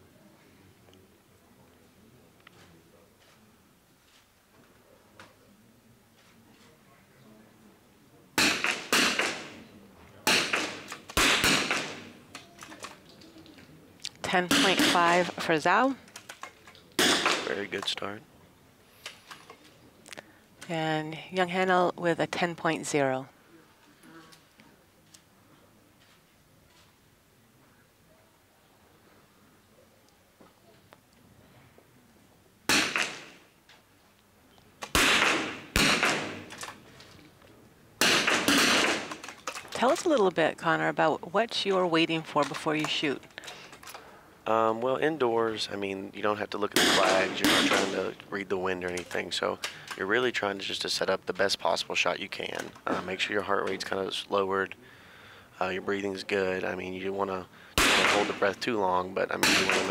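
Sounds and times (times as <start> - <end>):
rifle shots echoing indoors: 8.4 - 9.6, 10.3 - 12.2, 32.7 - 33.5, 34.8 - 36.7, 38.0 - 39.2, 46.8 - 47.9, 57.8 - 58.5, 59.4 - 59.9.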